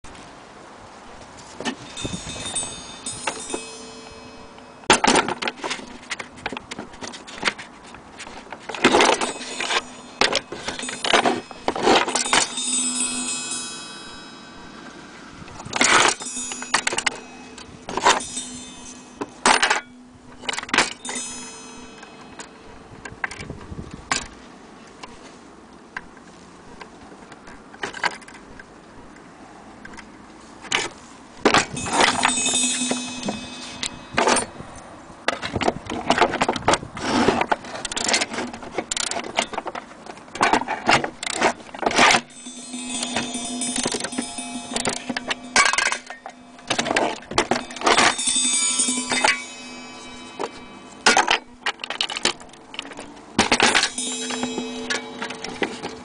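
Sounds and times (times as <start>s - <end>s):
metallic ringing: 1.6s - 7.6s, 8.3s - 23.5s, 31.4s - 36.4s, 40.4s - 56.0s.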